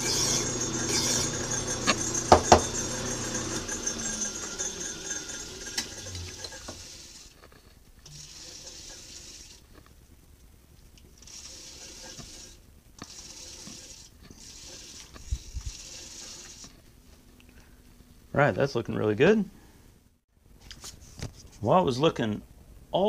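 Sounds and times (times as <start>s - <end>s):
file rasping on metal: 0.0s - 7.2s, 8.1s - 9.5s, 11.3s - 16.7s
lathe running: 0.0s - 7.4s, 8.1s - 9.6s, 11.2s - 16.7s.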